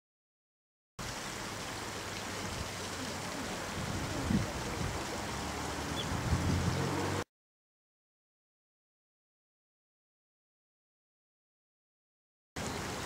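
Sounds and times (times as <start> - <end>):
river water rushing: 1.0 - 7.2, 12.6 - 13.0.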